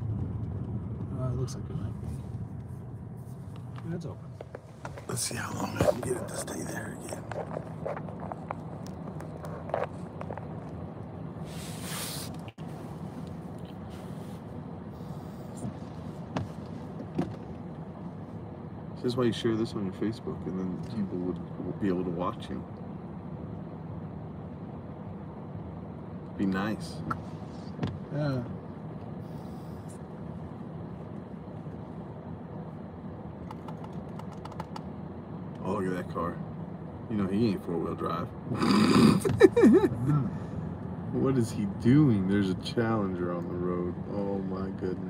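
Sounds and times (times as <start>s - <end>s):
vehicle idling rumble: 0.0s - 45.0s
brief loud hiss: 11.5s - 12.4s.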